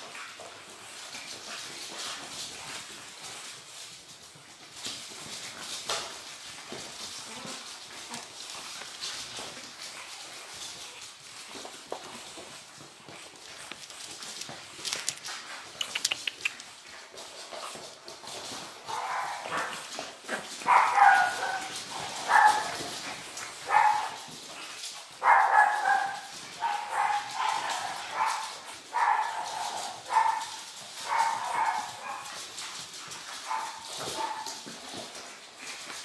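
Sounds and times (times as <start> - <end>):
puppies barking: 18.8 - 24.3, 25.1 - 32.4.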